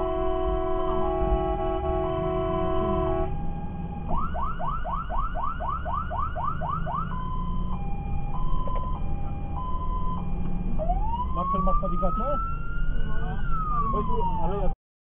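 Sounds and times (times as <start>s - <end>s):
multi-tone air horn: 0.0s - 3.3s
electronic siren: 0.0s - 14.7s
truck engine rumbling: 0.0s - 14.7s.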